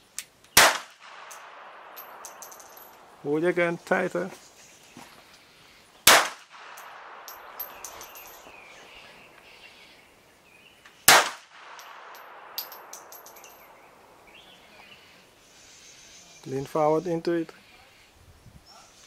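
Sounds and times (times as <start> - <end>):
pistol shot: 0.6 - 2.4, 6.0 - 7.6, 11.1 - 12.6
brass cases tinkling: 1.3 - 3.1, 6.8 - 8.9, 11.7 - 13.8.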